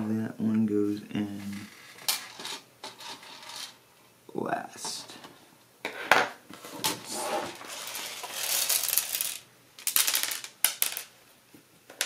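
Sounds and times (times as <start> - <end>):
small screws rattling on desk: 7.6 - 11.1.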